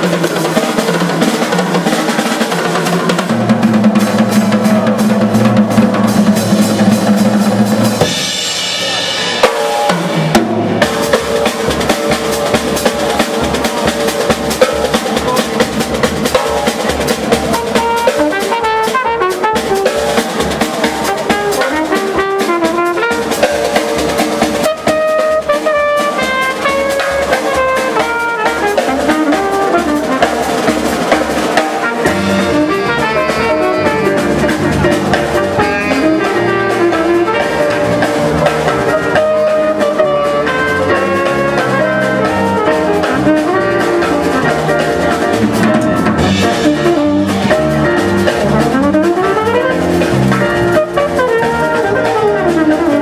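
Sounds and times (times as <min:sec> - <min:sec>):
drum kit samba beat: 0:00.0 - 0:53.0
bass line: 0:03.1 - 0:53.0
trumpet and saxophone melody: 0:17.5 - 0:53.0.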